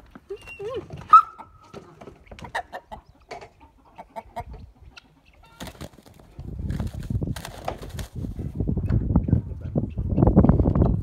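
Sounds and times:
chicken clucking: 0.1 - 6.6, 9.1 - 11.0
chicken squawking: 0.4 - 1.6.

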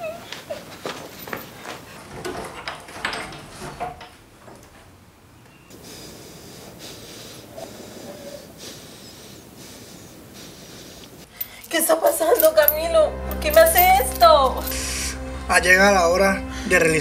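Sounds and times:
person breathing heavily: 5.7 - 11.7.

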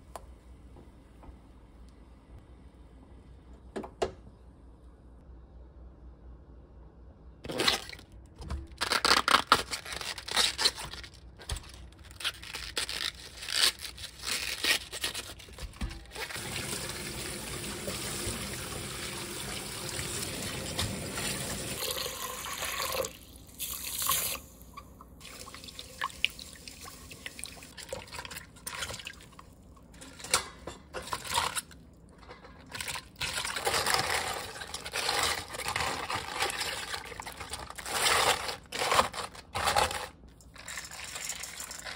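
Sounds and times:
running tap water: 16.2 - 24.4.

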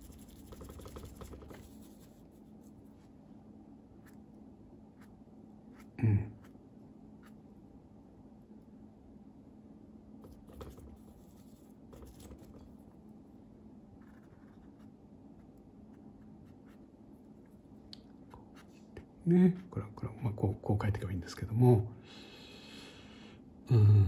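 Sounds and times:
paintbrush brushing on paper: 0.0 - 3.2, 10.2 - 12.9, 14.0 - 17.8
low steady hum: 0.0 - 24.0.

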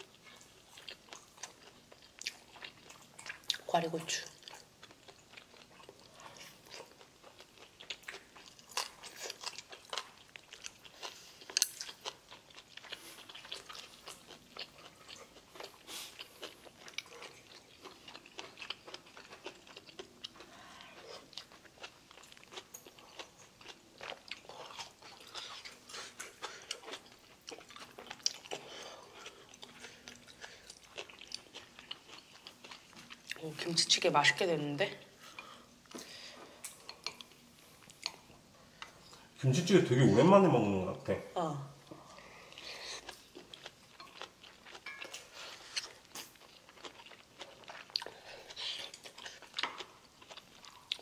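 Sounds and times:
person chewing and biting food: 4.4 - 33.4, 42.4 - 51.0.

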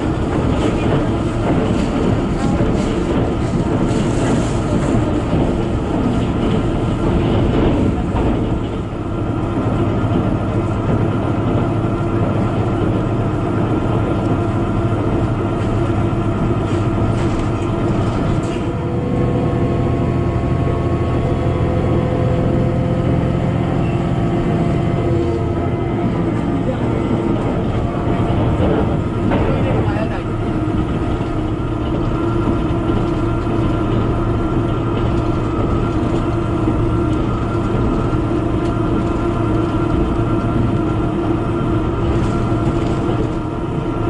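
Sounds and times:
diesel engine hum: 0.0 - 44.0
train wheels rumbling on rail: 0.0 - 44.0.

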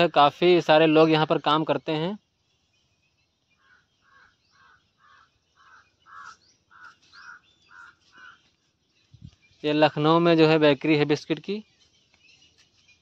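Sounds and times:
small birds chirping: 0.0 - 13.0
crow cawing: 3.6 - 8.5.

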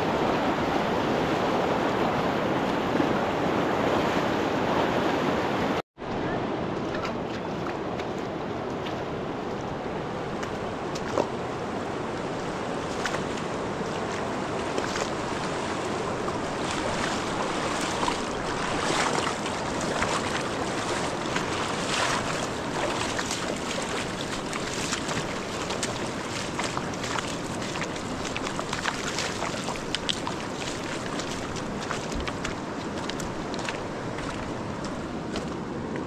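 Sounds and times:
river water rushing: 0.0 - 36.0
small splashes and knocks: 6.8 - 9.6, 10.4 - 11.4, 12.1 - 36.0.

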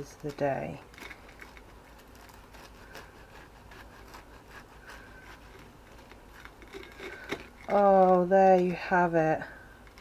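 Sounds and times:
knife crunching through crumb coating: 0.8 - 8.3.

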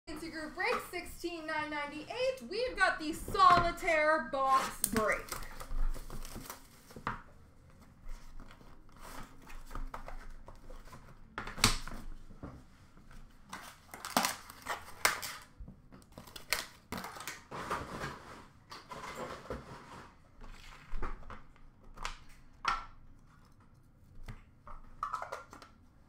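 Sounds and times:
cardboard and wrappers rustling: 0.1 - 21.6.

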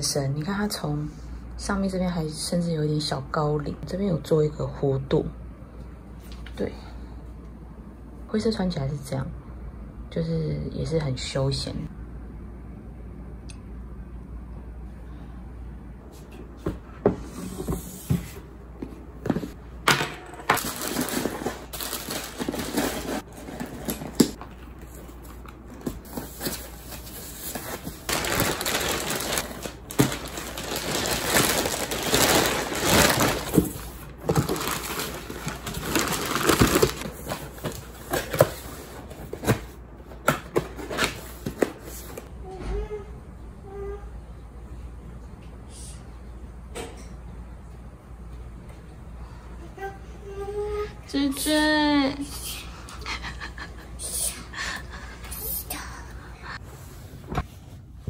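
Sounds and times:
plastic bags crinkling: 20.6 - 38.0.

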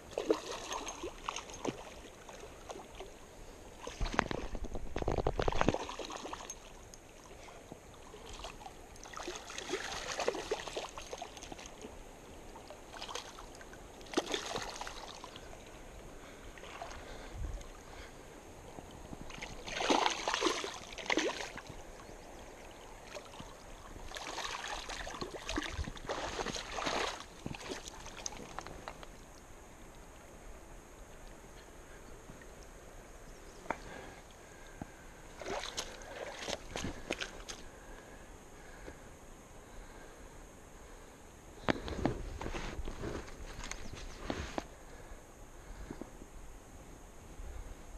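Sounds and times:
river water washing: 0.0 - 29.6, 35.2 - 38.0
fish splashing in water: 14.0 - 15.5, 19.3 - 21.7.

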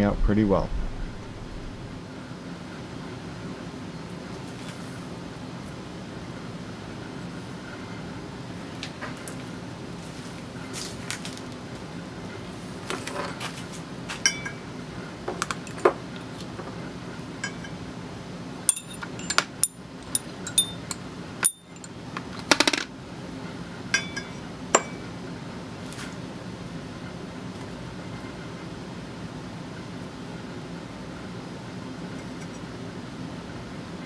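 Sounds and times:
steady low hum: 0.0 - 34.0
metal parts clinking on steel: 18.7 - 22.9.

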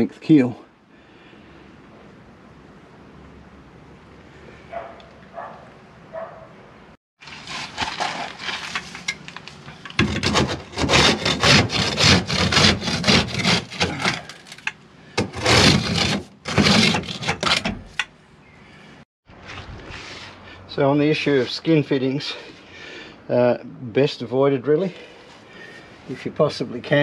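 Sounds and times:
scraper scraping boat hull: 10.0 - 14.6, 15.2 - 18.0.

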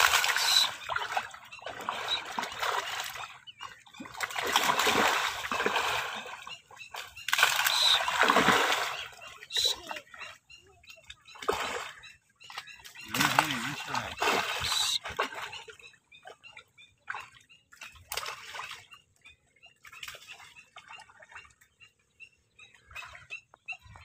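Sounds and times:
fish splashing in pond: 0.0 - 10.4, 11.4 - 16.4, 17.0 - 19.0.

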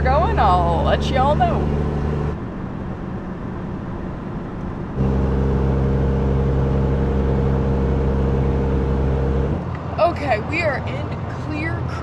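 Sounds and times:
truck engine and road noise: 0.0 - 12.0.

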